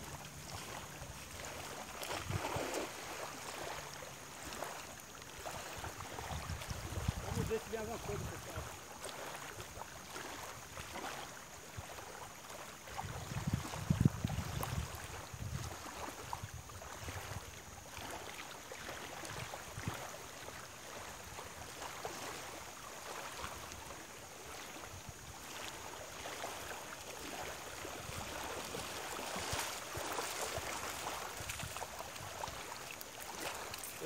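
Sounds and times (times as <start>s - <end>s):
small waves lapping: 0.0s - 34.0s.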